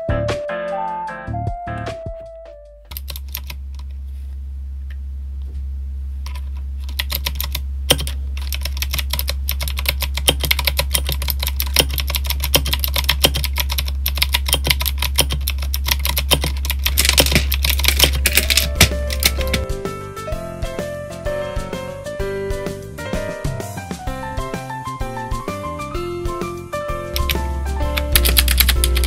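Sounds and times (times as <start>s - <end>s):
mechanical keyboard typing: 2.9s - 3.6s, 6.2s - 19.8s, 27.1s - 29.0s
steady low hum: 2.9s - 20.7s, 27.0s - 29.0s.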